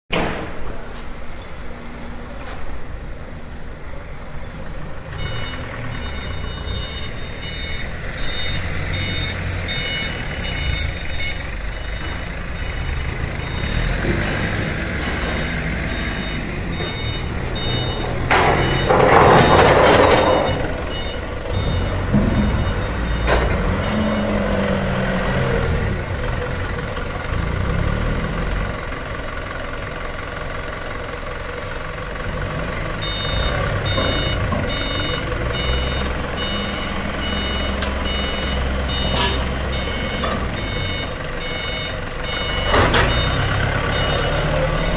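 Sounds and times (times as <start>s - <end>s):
forklift engines running: 0.1s - 44.9s
reversing alarm beeps: 5.1s - 25.6s, 33.0s - 44.9s.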